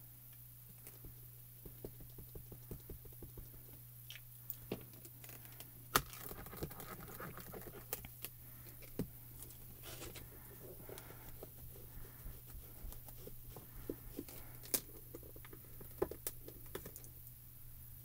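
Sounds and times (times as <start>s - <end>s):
faint low hum: 0.0s - 18.0s
ink cube tapping on stamps: 1.0s - 3.7s.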